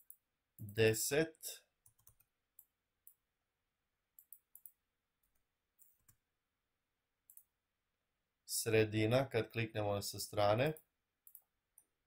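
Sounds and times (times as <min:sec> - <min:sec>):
computer mouse clicks: 0:01.8 - 0:03.2, 0:04.2 - 0:06.2, 0:07.3 - 0:07.5, 0:11.2 - 0:11.9.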